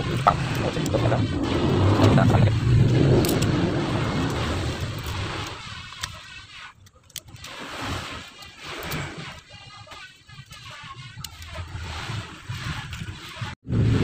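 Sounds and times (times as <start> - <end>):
vehicle engine running: 0.0 - 5.6.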